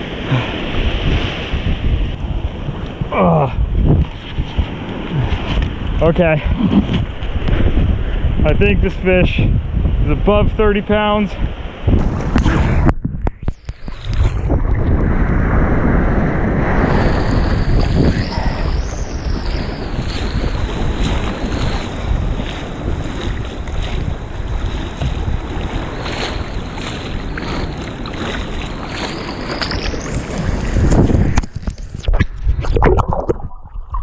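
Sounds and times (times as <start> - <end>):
waves washing on beach: 0.0 - 8.4, 13.6 - 31.9
wind buffeting microphone: 0.0 - 34.0
water splashing: 11.9 - 15.4, 16.7 - 34.0.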